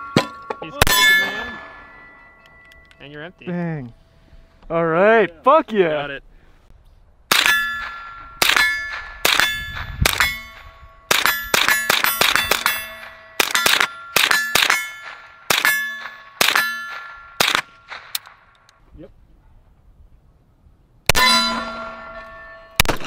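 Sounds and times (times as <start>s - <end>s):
steel target clanging: 0.0s - 3.1s, 7.3s - 18.4s, 21.1s - 23.0s
rifle shots: 7.3s - 18.5s, 22.8s - 23.0s.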